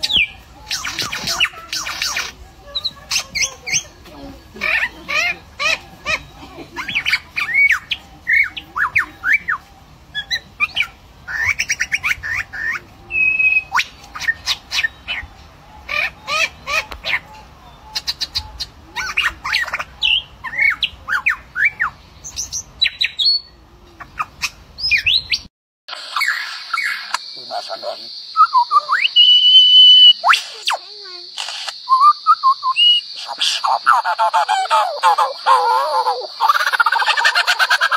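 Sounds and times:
lyrebird mimicking calls: 33.1s - 37.9s.

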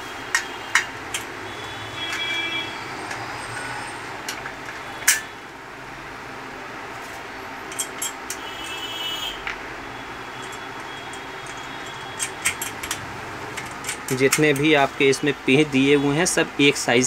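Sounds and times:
steady background noise: 0.0s - 17.0s
metal parts clinking on workbench: 7.7s - 8.4s, 10.4s - 14.7s.

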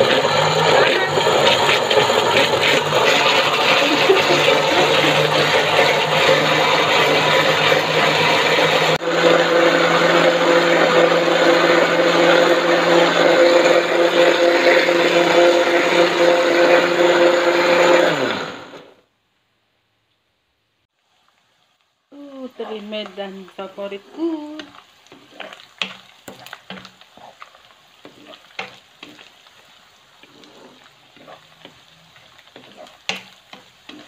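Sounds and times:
electric blender grinding: 0.0s - 19.0s, 30.2s - 34.0s.

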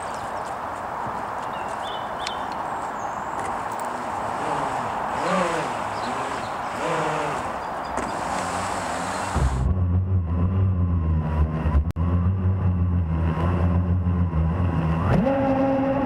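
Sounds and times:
electric jet drive rushing: 4.0s - 9.8s
loud low rumble: 9.4s - 14.6s.

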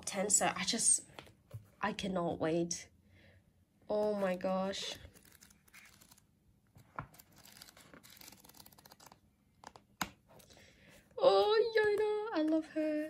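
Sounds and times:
pages flipping: 4.9s - 10.5s.

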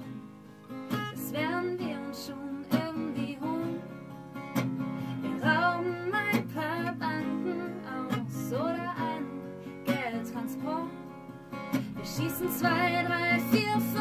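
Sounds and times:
acoustic guitar strumming chords: 0.0s - 14.0s
woman singing: 0.9s - 4.0s, 5.1s - 11.1s, 11.7s - 14.0s.

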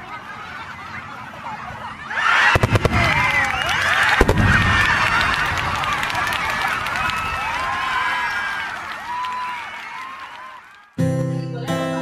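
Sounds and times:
crowd cheering and whooping: 2.0s - 11.0s
clapping: 3.0s - 11.0s.

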